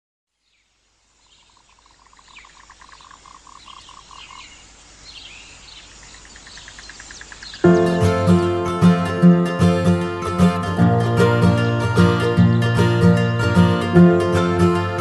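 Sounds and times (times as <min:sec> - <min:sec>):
bird-like chirps: 0:00.4 - 0:07.8.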